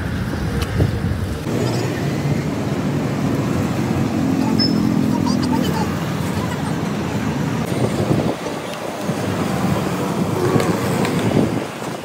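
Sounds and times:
road traffic noise: 0.0 - 12.0.

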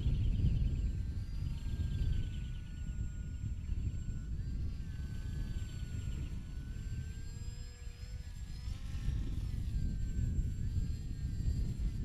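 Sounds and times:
electric motor and propeller whining: 0.0 - 12.0
wind rumble on microphone: 0.0 - 12.0.

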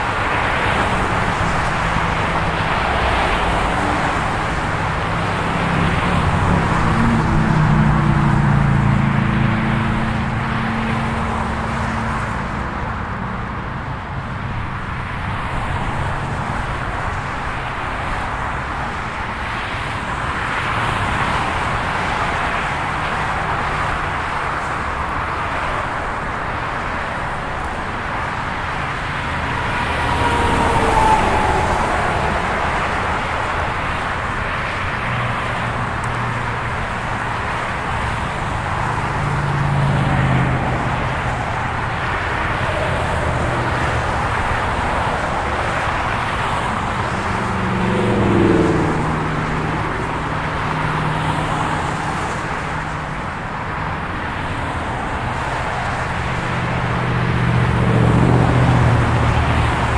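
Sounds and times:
freeway traffic rushing: 0.0 - 59.9
vehicle passing by: 38.6 - 52.4, 56.6 - 59.9.

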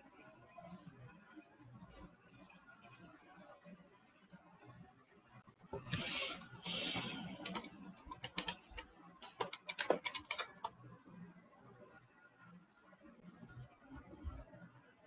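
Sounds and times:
rustling hisses: 5.8 - 7.4
typing on a computer keyboard: 5.8 - 10.8.

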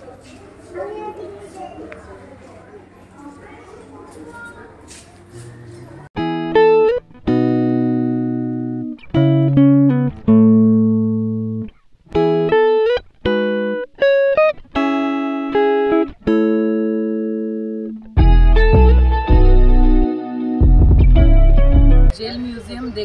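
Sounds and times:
plucked guitar music: 6.2 - 22.1.

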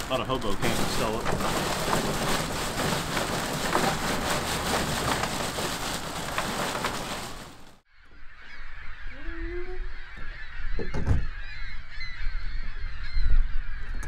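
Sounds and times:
plastic bag of ice rattling: 0.0 - 7.8
bird honk: 8.0 - 13.9.

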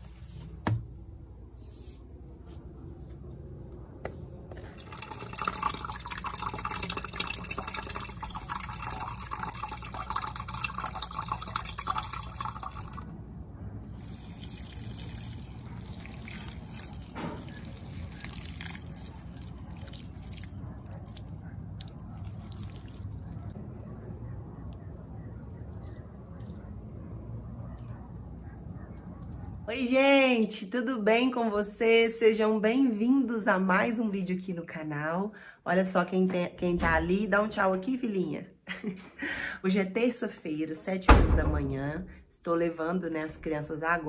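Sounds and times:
water spattering on leaves: 13.9 - 21.3.

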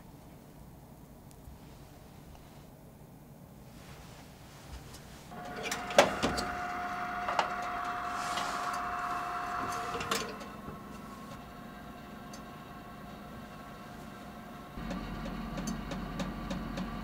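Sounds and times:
oven running hum: 4.9 - 17.0
oven door shutting clunk: 5.4 - 11.0.

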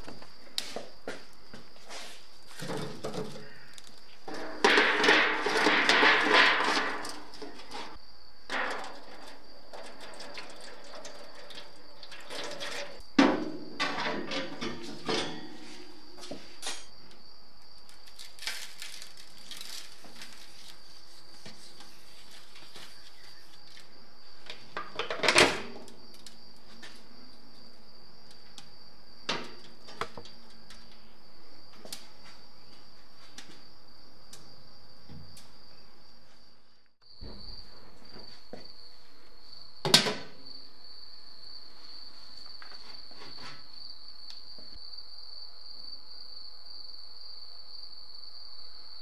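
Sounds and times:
metal lid clanking shut: 4.3 - 7.9, 8.5 - 16.0.

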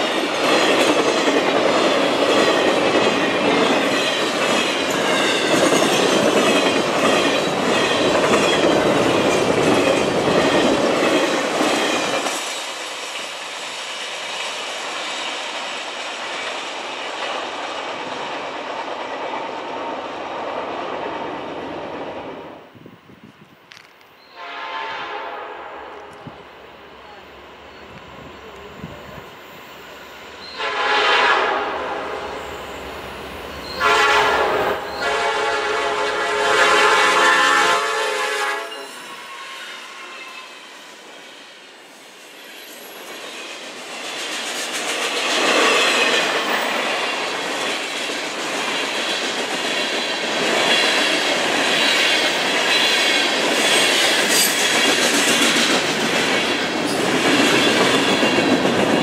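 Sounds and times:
wheels clacking over rail joints: 0.0 - 13.4
locomotive air horn blasts: 24.4 - 26.0, 30.6 - 32.2, 33.8 - 39.6.

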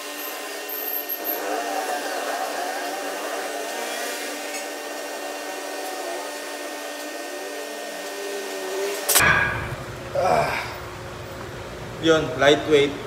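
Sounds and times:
electric fan whirring: 0.0 - 13.0.

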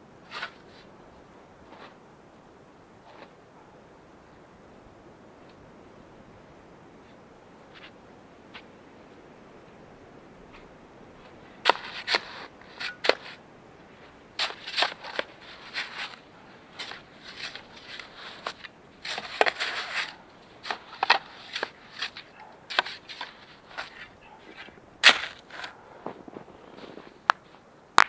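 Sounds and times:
shovel crunching into snow: 11.6 - 13.4, 14.4 - 27.2.

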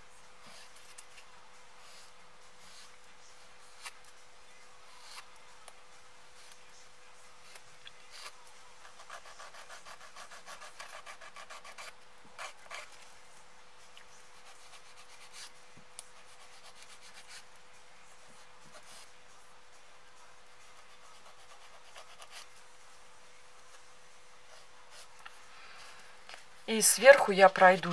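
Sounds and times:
nail file rasping: 8.9 - 12.9.

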